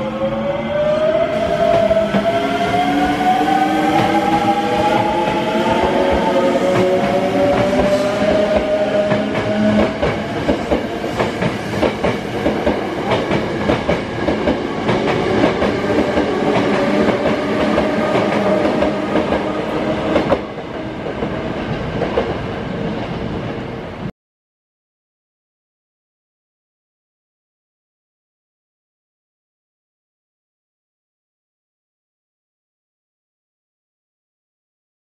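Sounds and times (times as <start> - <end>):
train wheels clacking on rails: 1.6 - 22.4.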